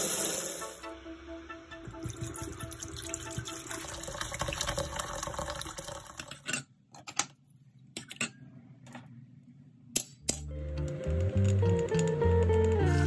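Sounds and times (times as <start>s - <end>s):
water running and splashing: 2.1s - 6.2s.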